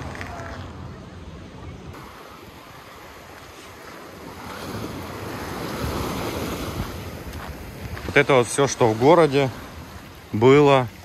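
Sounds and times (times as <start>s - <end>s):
wind on microphone: 0.0s - 11.0s
small waves splashing on pier: 1.9s - 11.0s.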